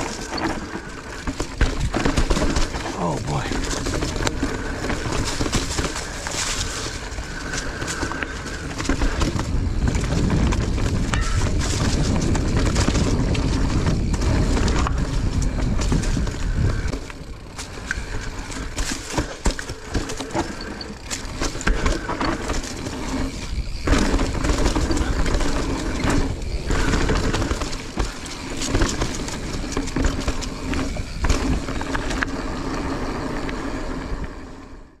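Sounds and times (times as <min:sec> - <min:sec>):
bike rattling over bumps: 0:00.0 - 0:35.0
bike tyres rolling on dirt: 0:00.0 - 0:35.0
wind buffeting microphone: 0:09.1 - 0:18.4.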